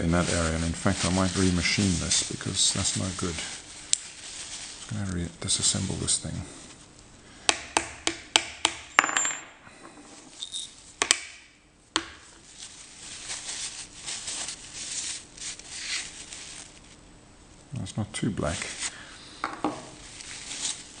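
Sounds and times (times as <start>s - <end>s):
cloth rag rubbing metal: 0.0s - 6.2s, 12.4s - 17.0s.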